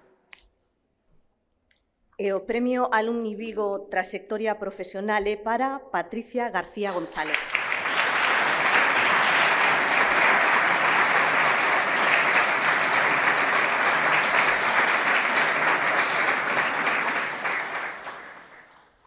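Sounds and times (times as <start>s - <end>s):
audience applauding: 7.0s - 19.0s.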